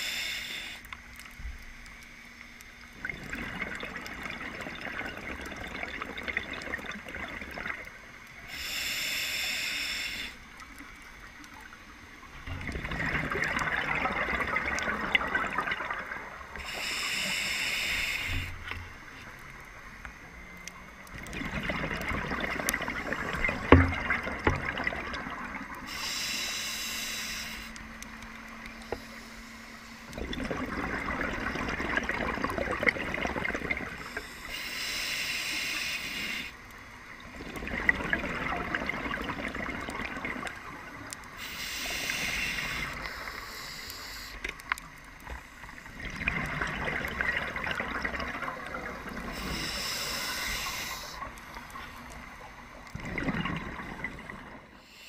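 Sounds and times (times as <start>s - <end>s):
scuba regulator breathing: 0.0s - 0.9s, 8.5s - 10.5s, 16.6s - 18.8s, 25.8s - 27.9s, 34.0s - 36.6s, 41.4s - 44.6s, 49.2s - 51.6s, 54.7s - 55.0s
rushing bubbles: 2.9s - 7.9s, 12.4s - 16.6s, 18.6s - 25.9s, 30.1s - 34.1s, 37.2s - 41.1s, 45.7s - 49.7s, 51.2s - 54.8s
short high hiss: 8.5s - 10.4s, 16.6s - 18.8s, 25.9s - 27.8s, 41.4s - 44.4s, 49.4s - 51.3s.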